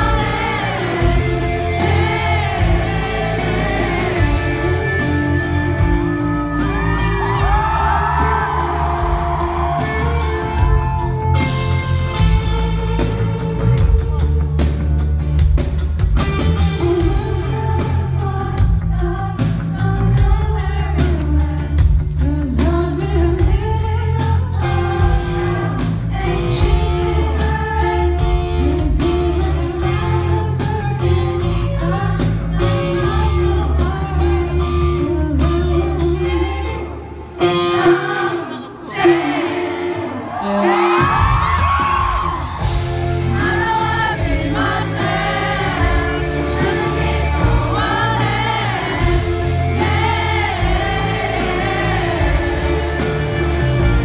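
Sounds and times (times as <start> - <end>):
live rock band playing: 0.0 - 54.0
person singing: 16.6 - 42.2.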